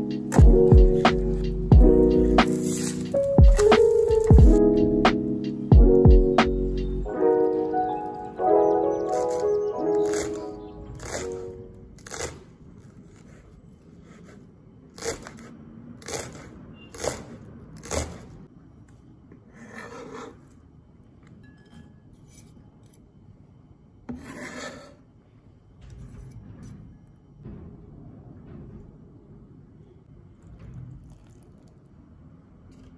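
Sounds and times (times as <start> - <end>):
blade scraping across board: 2.2 - 4.3, 9.1 - 18.3, 24.1 - 25.0.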